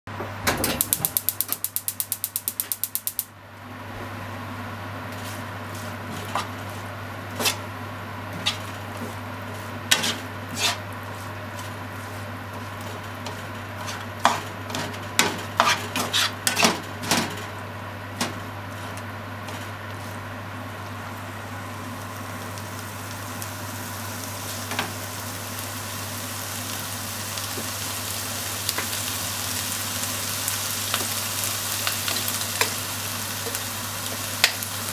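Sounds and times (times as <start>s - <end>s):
turner tapping and scraping pan: 5.1s - 6.8s, 8.3s - 17.5s
food sizzling in frying pan: 5.2s - 34.9s.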